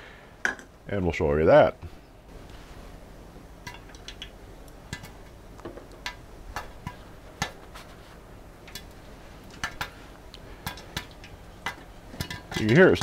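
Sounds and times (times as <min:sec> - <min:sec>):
faint steady hum: 0:00.0 - 0:13.0
popcorn popping: 0:03.4 - 0:13.0.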